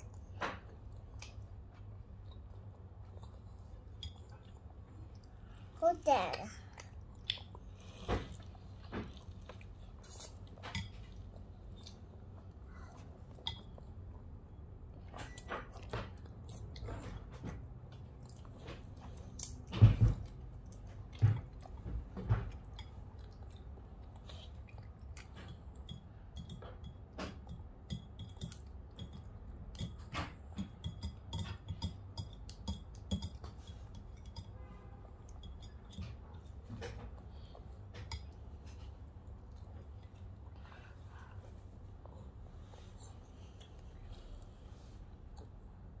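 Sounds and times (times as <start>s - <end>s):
children chewing: 0.0s - 5.8s, 6.4s - 14.5s, 15.7s - 26.6s.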